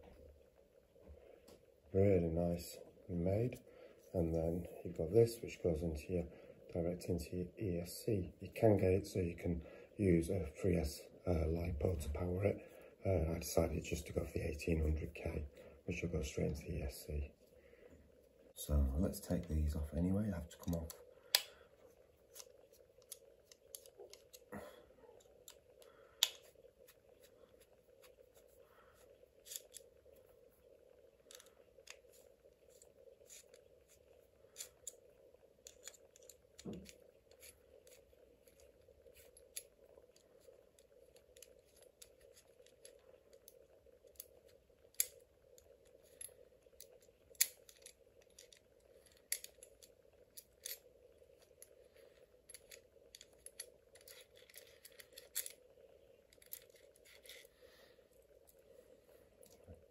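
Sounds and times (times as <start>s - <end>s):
faint hum: 0.0s - 59.9s
light clicks and handling noises: 0.0s - 59.9s.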